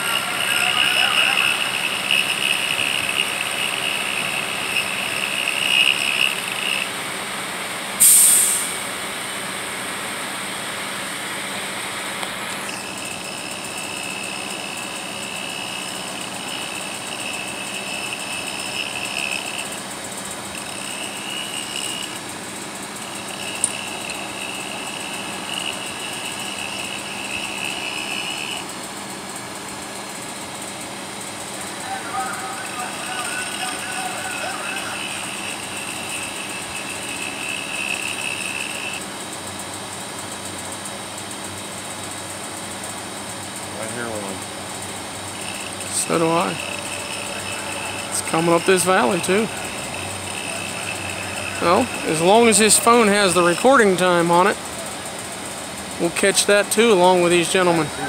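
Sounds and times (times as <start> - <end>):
rail cutter high whine: 0.0 - 58.0
loud hissing blast: 8.0 - 9.1.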